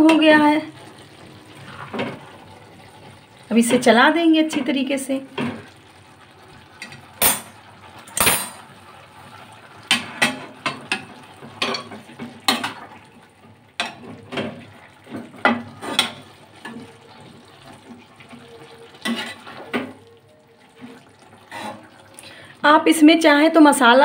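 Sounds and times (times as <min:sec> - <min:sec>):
metal ladle scraping a pan: 0:15.2 - 0:17.0, 0:18.4 - 0:20.0, 0:20.8 - 0:22.1.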